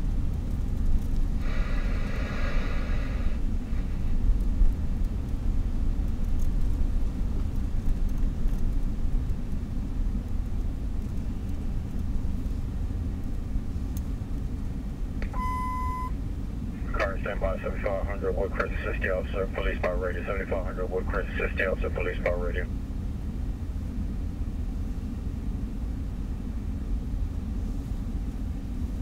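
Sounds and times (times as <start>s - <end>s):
police scanner alert beep: 15.2s - 16.1s.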